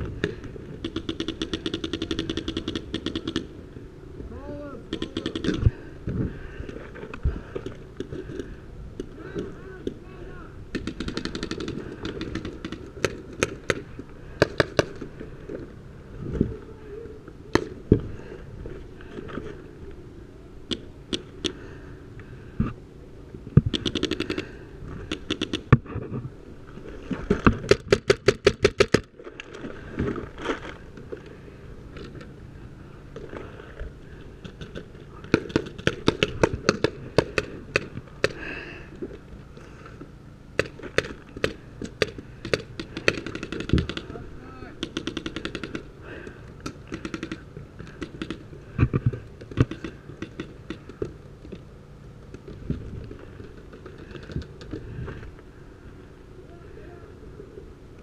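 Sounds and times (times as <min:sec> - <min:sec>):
paintball markers firing: 0:00.2 - 0:03.6, 0:04.9 - 0:05.8, 0:10.7 - 0:15.1, 0:23.7 - 0:25.8, 0:34.4 - 0:38.5, 0:40.6 - 0:44.2, 0:44.8 - 0:45.9, 0:46.6 - 0:51.1.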